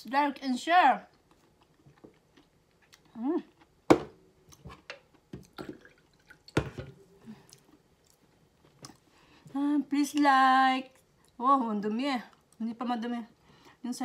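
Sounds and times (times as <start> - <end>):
liquid dripping: 5.4 - 7.7
drink pouring into a glass: 5.5 - 7.0.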